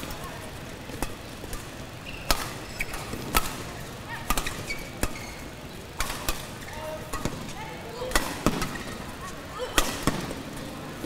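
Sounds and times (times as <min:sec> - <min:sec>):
rackets hitting shuttlecock: 0:00.9 - 0:10.7
shoes squeaking on court: 0:02.0 - 0:03.3, 0:04.2 - 0:05.6.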